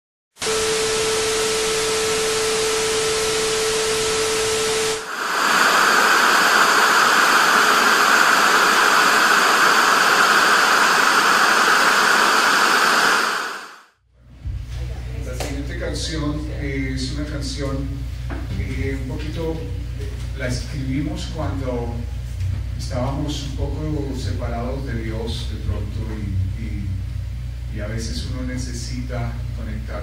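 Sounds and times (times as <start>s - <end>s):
steady held tone: 0.4s - 13.9s
television static hiss: 0.6s - 13.8s.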